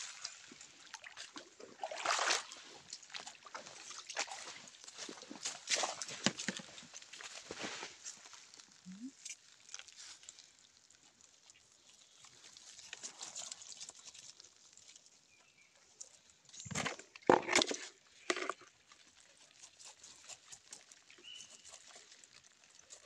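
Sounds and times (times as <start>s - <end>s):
dry leaves crackling: 7.0s - 15.4s
bucket lid pulled off: 16.6s - 18.7s.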